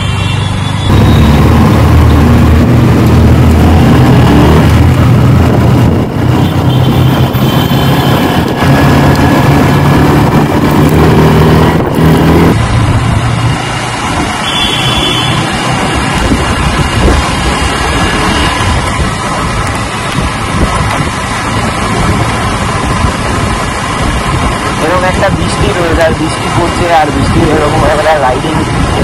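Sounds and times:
wind and road noise: 0.0s - 29.0s
motorcycle engine running: 0.8s - 13.4s.

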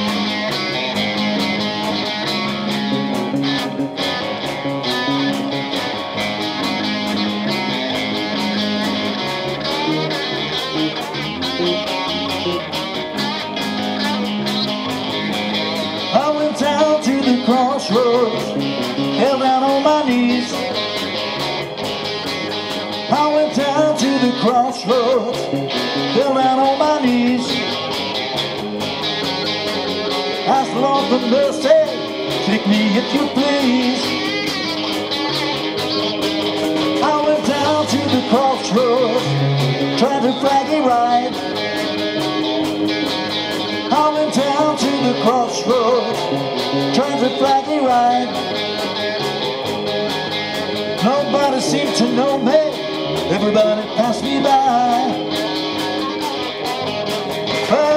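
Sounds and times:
drum beat: 0.0s - 24.6s
electric guitar: 0.0s - 57.9s
live rock band: 0.0s - 57.9s.

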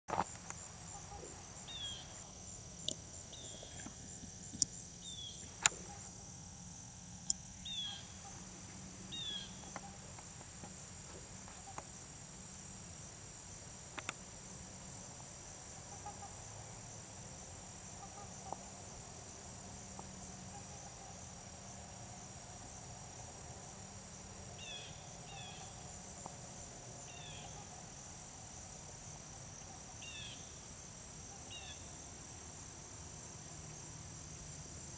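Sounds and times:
insects droning: 0.1s - 34.9s
bird chirps: 5.0s - 6.0s, 7.2s - 8.4s, 9.1s - 10.0s.

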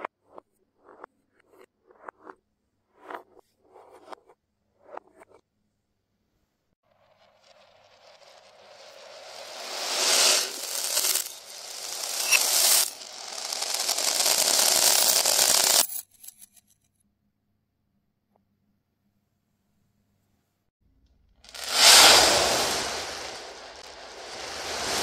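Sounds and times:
reversed plastic beads rattling: 7.4s - 16.4s.

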